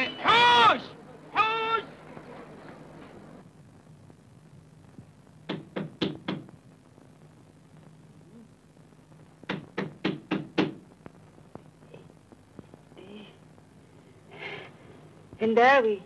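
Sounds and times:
knocking on a door: 0:05.5 - 0:06.5, 0:09.5 - 0:10.8.

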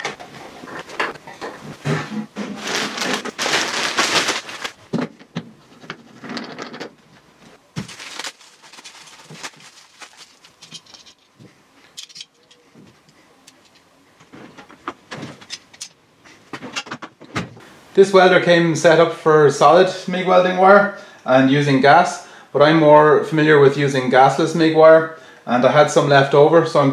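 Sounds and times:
plastic wrapping crinkling: 0:02.4 - 0:04.9, 0:07.8 - 0:11.3.

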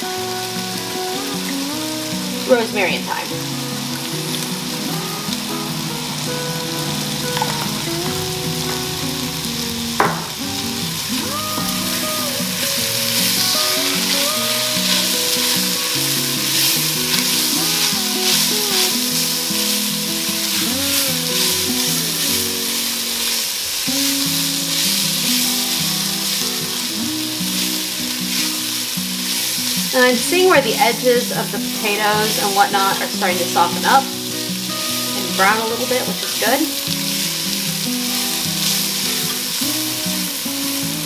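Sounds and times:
instrumental music: 0:00.0 - 0:41.0
vegetables sizzling in oil: 0:00.0 - 0:41.0
sharp knock: 0:10.0 - 0:10.5.

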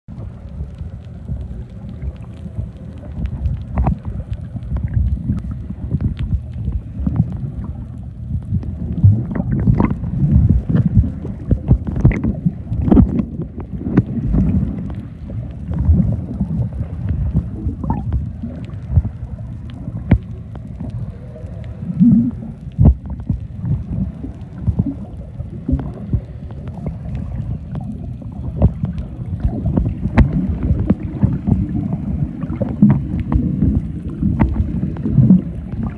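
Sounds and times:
underwater water rumble: 0:00.0 - 0:35.9
irregular underwater knocks: 0:29.4 - 0:31.6.

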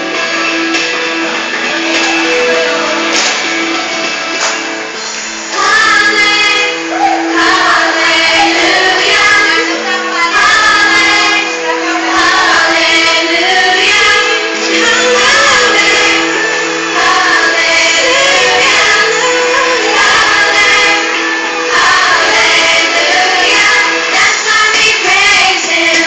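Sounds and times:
sustained instrumental backing: 0:00.0 - 0:24.7
singing: 0:05.5 - 0:26.0.

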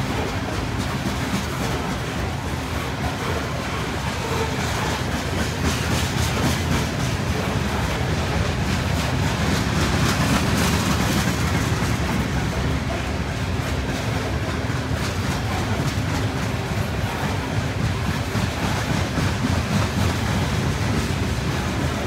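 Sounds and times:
clickety-clack over rail joints: 0:00.0 - 0:22.0
train wheels rumbling on rail: 0:00.0 - 0:22.0.

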